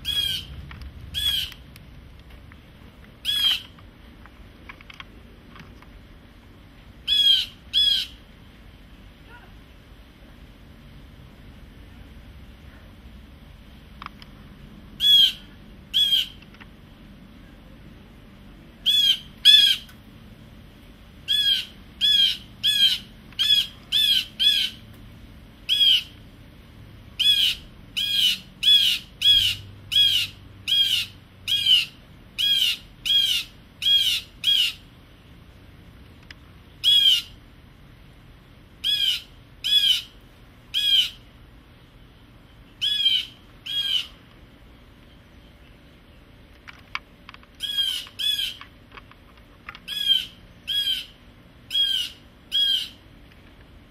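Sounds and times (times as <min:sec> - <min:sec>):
blue jay harsh jeer calls: 0:00.0 - 0:01.6, 0:03.2 - 0:03.8, 0:07.0 - 0:08.2, 0:15.0 - 0:16.4, 0:18.8 - 0:19.9, 0:21.2 - 0:24.9, 0:25.6 - 0:26.2, 0:27.2 - 0:34.9, 0:36.8 - 0:37.4, 0:38.8 - 0:41.3, 0:42.8 - 0:44.2, 0:47.6 - 0:48.6, 0:49.9 - 0:53.0.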